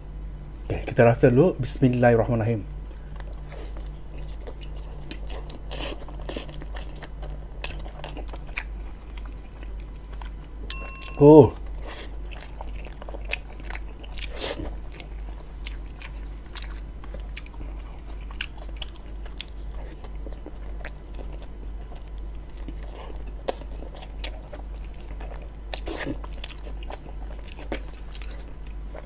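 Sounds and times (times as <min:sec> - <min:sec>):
steady low hum: 0:00.0 - 0:29.0
close-miked chewing: 0:02.8 - 0:10.6, 0:11.8 - 0:29.0.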